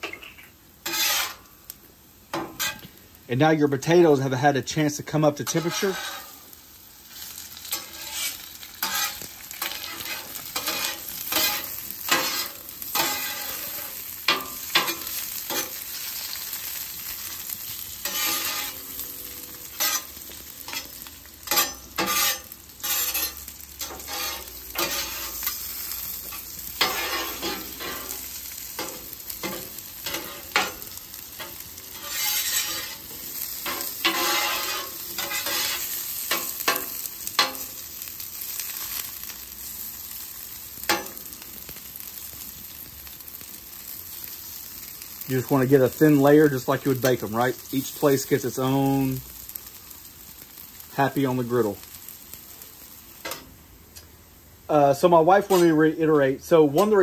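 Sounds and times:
food sizzling on a griddle: 0:00.0 - 0:57.0
steel spatulas scraping: 0:00.8 - 0:01.5, 0:02.4 - 0:02.8, 0:05.4 - 0:06.5, 0:07.7 - 0:15.8, 0:18.0 - 0:18.8, 0:20.7 - 0:25.7, 0:26.3 - 0:28.2, 0:31.4 - 0:33.0, 0:33.6 - 0:37.6, 0:55.4 - 0:55.8.

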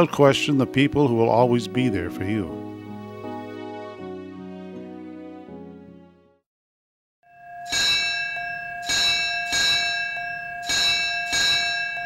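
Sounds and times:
large bell ringing: 0:07.3 - 0:12.0.

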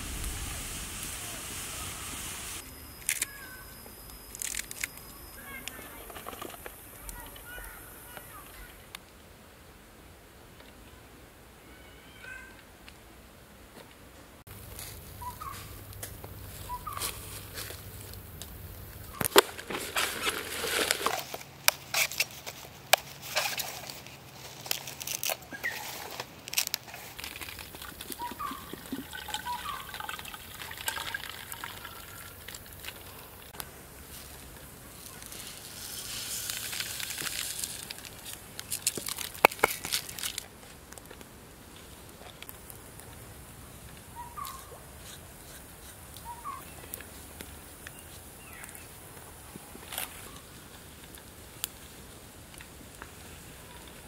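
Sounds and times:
liquid trickling into tube: 0:27.4 - 0:33.5.

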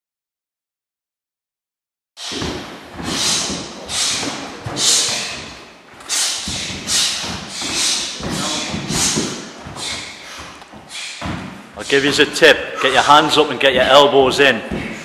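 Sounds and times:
short hissing rush: 0:02.2 - 0:05.4
dull thumps: 0:02.2 - 0:12.2.

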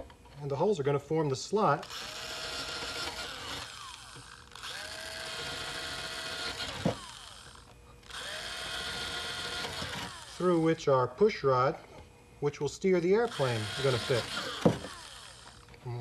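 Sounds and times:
electric drill spinning: 0:01.8 - 0:10.6, 0:13.2 - 0:15.8.

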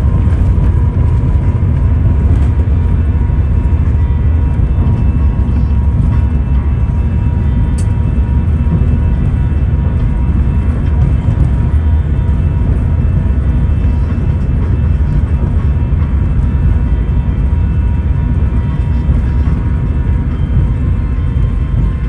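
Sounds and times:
airliner cabin rumble: 0:00.0 - 0:22.0
faint steady tones: 0:00.0 - 0:22.0.

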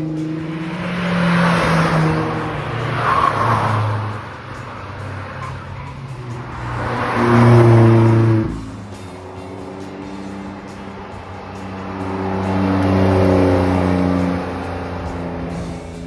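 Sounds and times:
cars passing by: 0:00.0 - 0:16.0.

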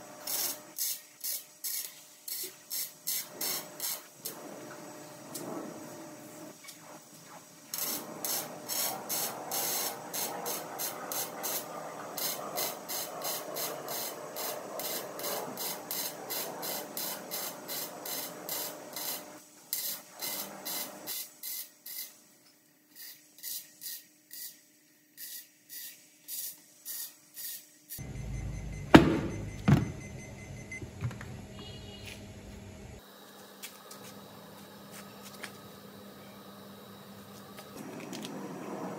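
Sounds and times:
welding arc crackling: 0:07.7 - 0:22.2
sharp knocks: 0:28.8 - 0:30.0.

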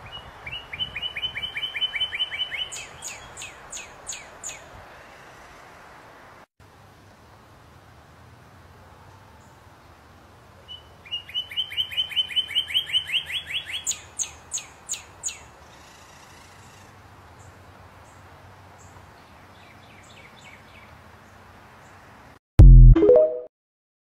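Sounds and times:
songbird singing: 0:00.0 - 0:05.6, 0:10.6 - 0:22.0.

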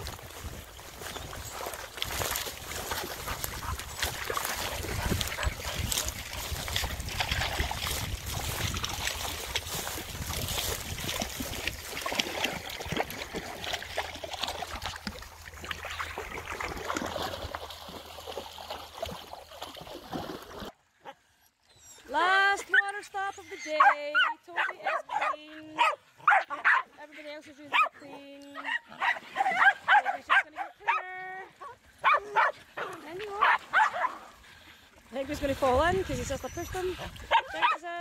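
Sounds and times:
wind rumbling on microphone: 0:00.0 - 0:11.9, 0:35.3 - 0:37.4
dogs splashing through water: 0:00.0 - 0:20.8, 0:22.1 - 0:38.0.

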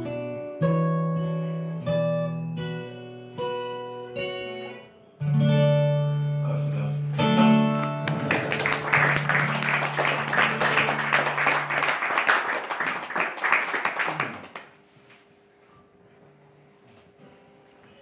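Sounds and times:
acoustic guitar chord ringing: 0:00.0 - 0:11.9
audience clapping: 0:07.8 - 0:14.8.

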